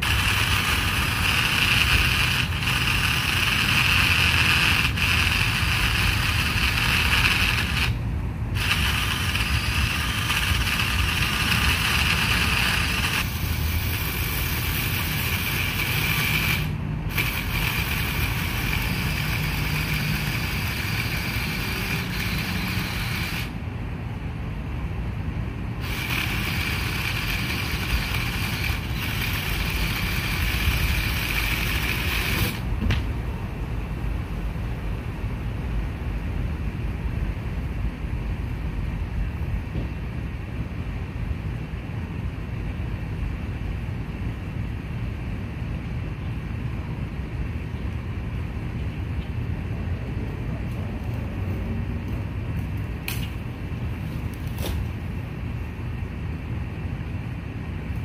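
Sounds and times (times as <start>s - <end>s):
drill chainsaw cutting branch: 0.0s - 8.0s, 8.6s - 23.6s, 25.8s - 32.7s.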